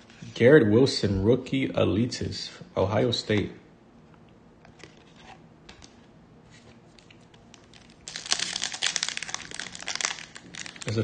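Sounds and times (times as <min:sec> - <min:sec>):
trading cards being handled: 0:04.7 - 0:11.0
card-pack wrapper crinkling: 0:07.0 - 0:11.0.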